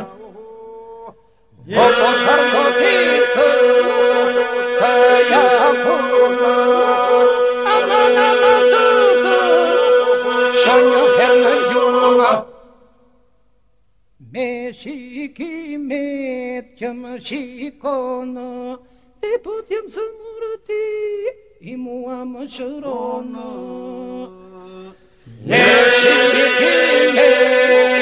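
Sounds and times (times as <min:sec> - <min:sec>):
group singing a drone: 0:00.0 - 0:12.9, 0:22.6 - 0:28.0
lead voice singing: 0:01.6 - 0:12.6, 0:21.7 - 0:28.0.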